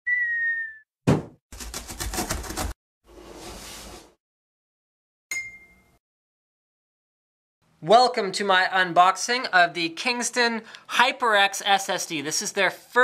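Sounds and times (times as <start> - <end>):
sharp thud: 1.1 - 1.4
bright ding: 5.3 - 6.0.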